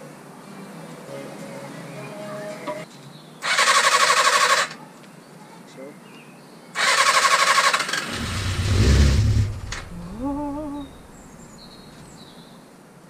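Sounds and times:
motorcycle electric starter cranking: 3.4s - 4.8s, 6.8s - 11.2s
engine firing with low rumble: 8.0s - 11.8s
short hummed tone: 9.0s - 11.6s.

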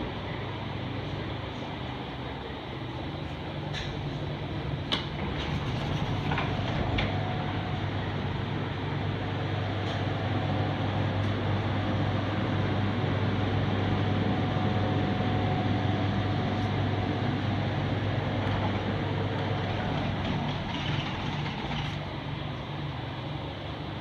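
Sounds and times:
refrigeration unit humming: 0.0s - 24.0s.

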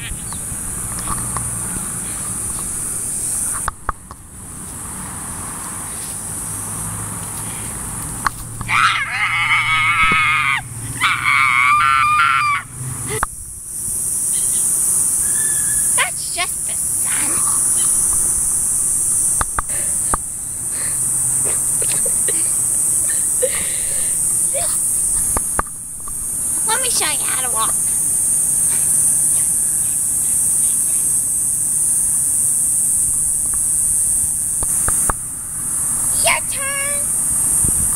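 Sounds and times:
insects chirring: 0.0s - 37.9s
sharp clicks: 3.5s - 4.2s, 19.3s - 20.2s, 34.6s - 35.2s.

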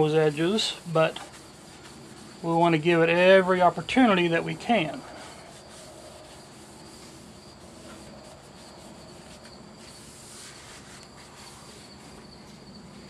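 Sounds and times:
insects trilling: 0.0s - 13.0s.

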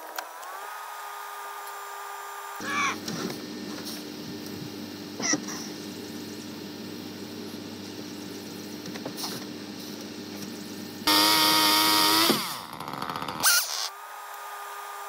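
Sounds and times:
chainsaw cutting wood: 11.1s - 15.0s.

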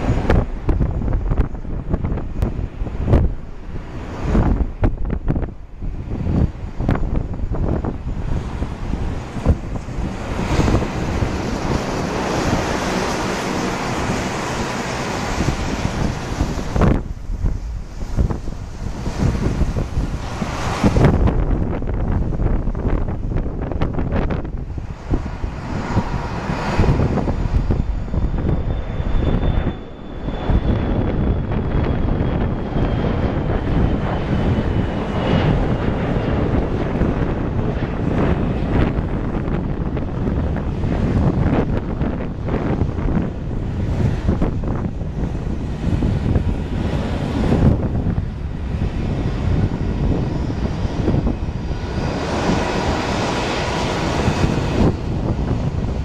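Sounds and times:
jet engines roaring at takeoff: 0.0s - 56.0s
faint high whine: 24.4s - 36.0s.

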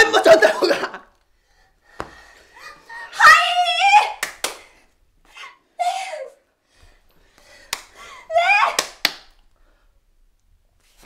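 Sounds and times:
sharp hand claps: 4.2s - 4.7s, 7.6s - 8.0s, 8.6s - 9.4s.

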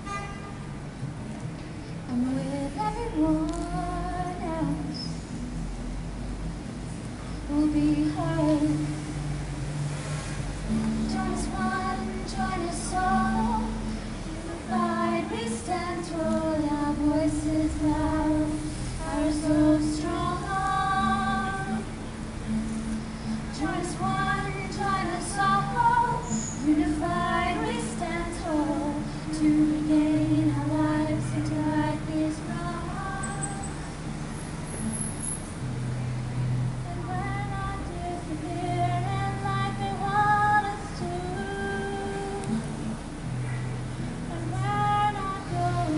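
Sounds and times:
strummed acoustic guitar: 1.0s - 45.9s
women singing: 2.1s - 5.2s, 7.5s - 9.3s, 10.7s - 22.0s, 23.3s - 33.9s, 36.8s - 42.8s, 44.3s - 45.9s.

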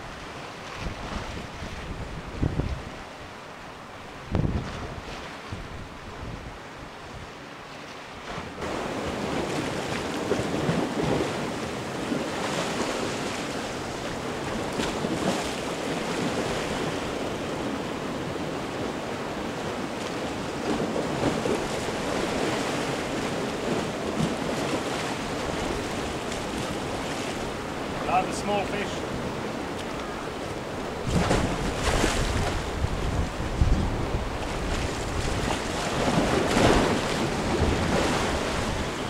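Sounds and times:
wind buffeting microphone: 0.0s - 3.2s, 4.0s - 7.3s, 29.0s - 39.0s
sea waves washing against rocks: 8.1s - 39.0s.

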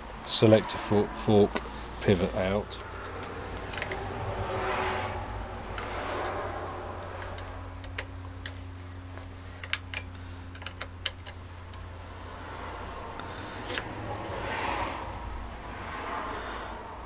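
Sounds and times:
steady low hum: 0.0s - 17.0s
tools clicking on metal: 2.8s - 4.1s, 5.7s - 11.9s.

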